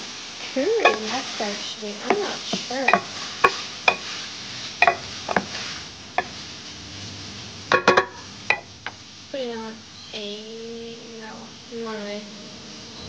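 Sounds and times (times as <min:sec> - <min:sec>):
chicken sizzling in a pan: 0:00.0 - 0:13.0
spoon knocking on a metal pan: 0:00.8 - 0:01.1, 0:02.1 - 0:04.1, 0:04.8 - 0:05.5, 0:07.7 - 0:08.7.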